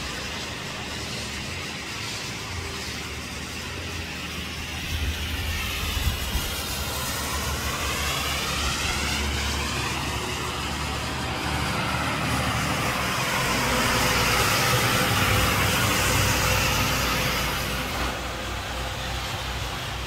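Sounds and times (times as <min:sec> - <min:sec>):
tyres hissing on wet asphalt: 0:00.0 - 0:20.0
vehicle passing: 0:07.1 - 0:17.8.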